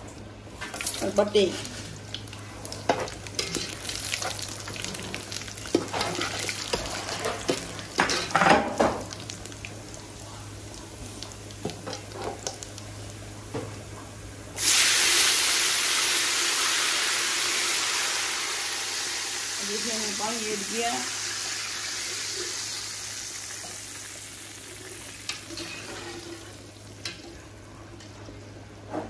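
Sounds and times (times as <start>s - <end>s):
spices sizzling in hot oil: 0.7s - 13.2s, 14.6s - 27.2s
water hissing in hot oil: 14.6s - 26.8s.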